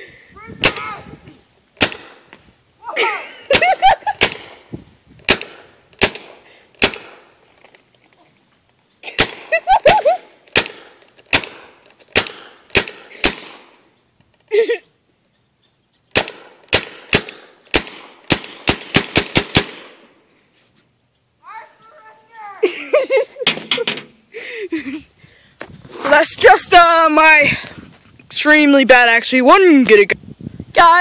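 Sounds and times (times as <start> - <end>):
person crying out: 2.8 - 3.5, 21.4 - 22.8.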